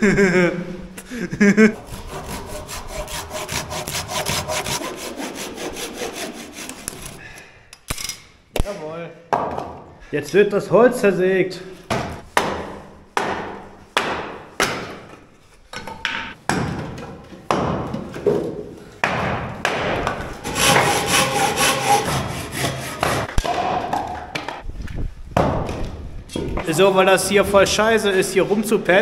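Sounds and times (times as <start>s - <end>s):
hand saw cutting wood: 1.8s - 7.2s, 20.4s - 23.3s.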